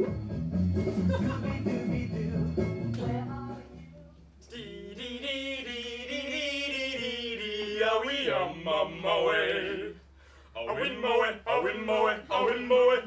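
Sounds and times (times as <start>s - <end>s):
recorded music: 0.0s - 5.2s
man singing unaccompanied: 4.4s - 10.0s, 10.6s - 13.0s.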